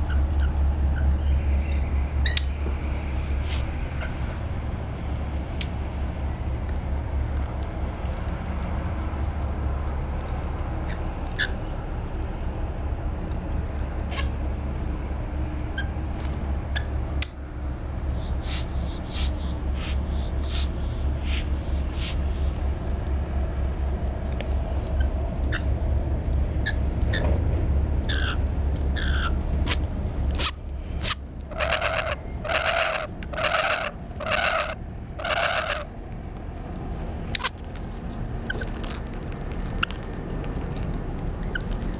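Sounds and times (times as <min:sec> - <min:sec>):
low rumble: 0:00.0 - 0:41.9
parrot chirps: 0:29.0 - 0:29.8, 0:30.4 - 0:35.9
loud repeated parrot calls: 0:30.4 - 0:35.9
beak clicks: 0:37.3 - 0:41.9.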